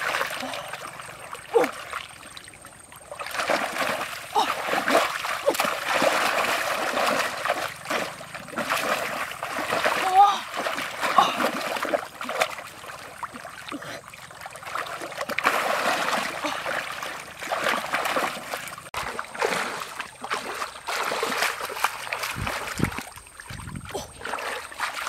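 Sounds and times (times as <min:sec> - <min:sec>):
muddy water sloshing and splashing: 0:00.0 - 0:25.0.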